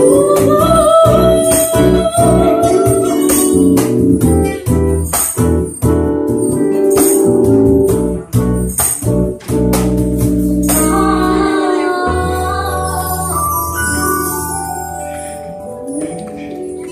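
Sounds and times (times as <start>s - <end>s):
woman singing: 0.0s - 3.9s, 10.8s - 14.2s
sharp percussion accents: 0.0s - 16.5s
live band playing: 0.0s - 16.9s.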